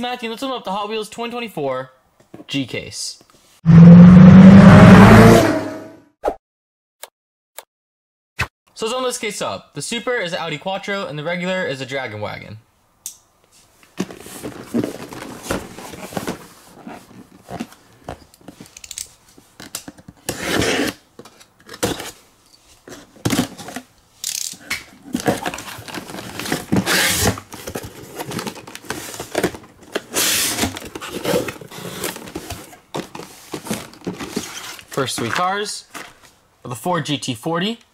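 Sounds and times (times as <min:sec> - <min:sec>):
cardboard and plastic rustling: 0:13.7 - 0:23.9, 0:24.9 - 0:36.4.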